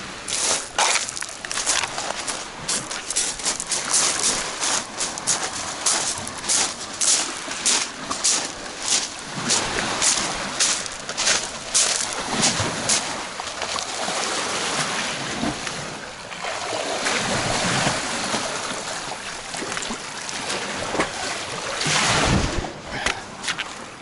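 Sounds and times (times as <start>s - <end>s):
sea surf washing: 0.0s - 24.0s
footsteps crunching on pebbles: 0.3s - 13.2s.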